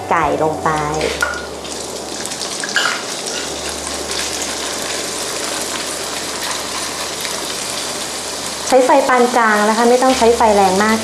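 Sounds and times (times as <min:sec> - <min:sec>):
chicken sizzling in hot oil: 0:00.1 - 0:11.0.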